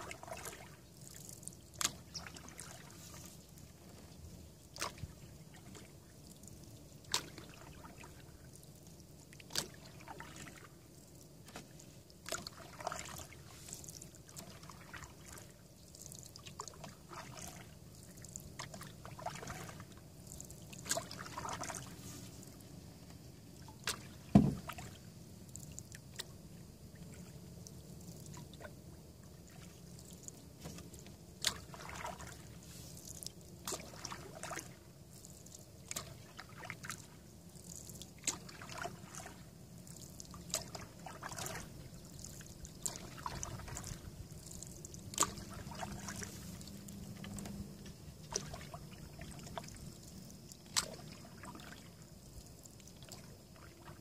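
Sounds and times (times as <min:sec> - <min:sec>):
paddle water drips and trickles: 0:00.0 - 0:54.0
loud knock: 0:24.3 - 0:24.6.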